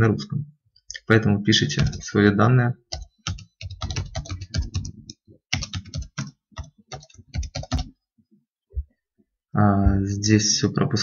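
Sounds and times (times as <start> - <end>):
typing on computer keyboard: 2.9 - 7.9.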